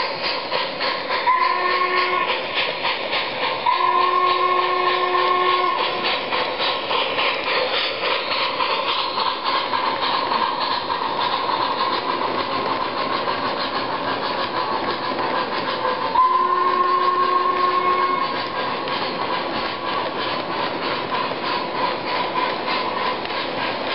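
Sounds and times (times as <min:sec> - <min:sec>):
model steam locomotive chuffing: 0:00.0 - 0:23.9
steam whistle: 0:01.2 - 0:02.4, 0:03.6 - 0:06.0, 0:16.1 - 0:18.4.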